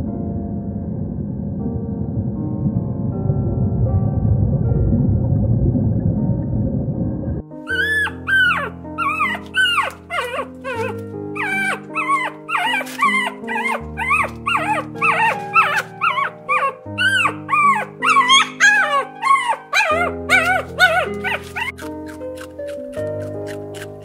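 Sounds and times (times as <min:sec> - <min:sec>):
music with slow held chords: 0:00.0 - 0:24.0
puppy whimpering and yipping: 0:07.7 - 0:21.9.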